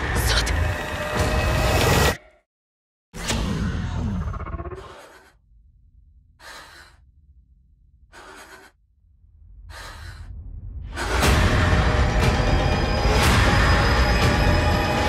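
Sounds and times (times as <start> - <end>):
sharp tense breaths: 8.0 - 8.9, 9.5 - 11.8.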